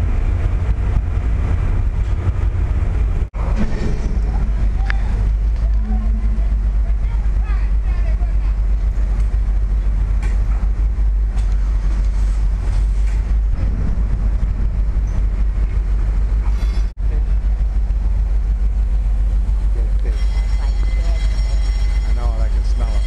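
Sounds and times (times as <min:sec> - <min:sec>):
wind on microphone: 0:00.0 - 0:19.7
ferry machinery rumbling: 0:00.0 - 0:23.0.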